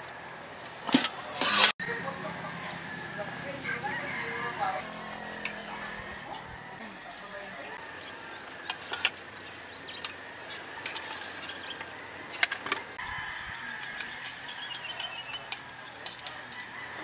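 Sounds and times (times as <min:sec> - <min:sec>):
small bird chirping: 0:07.7 - 0:12.0.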